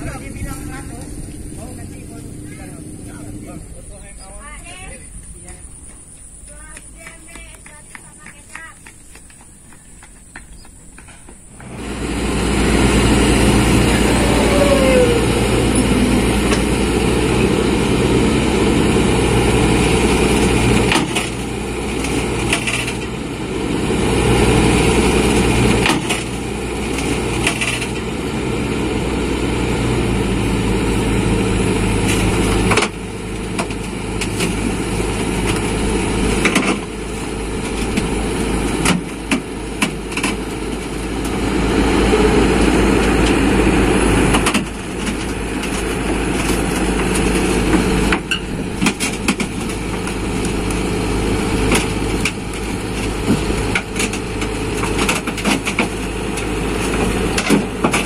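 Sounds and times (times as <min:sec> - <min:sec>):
excavator diesel engine running: 0:00.0 - 0:58.0
steel tracks and bucket clanking: 0:09.3 - 0:58.0.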